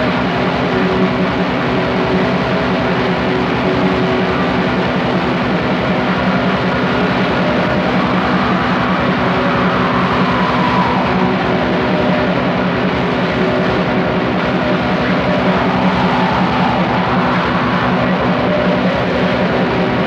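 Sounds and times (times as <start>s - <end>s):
black metal music: 6.5s - 20.0s.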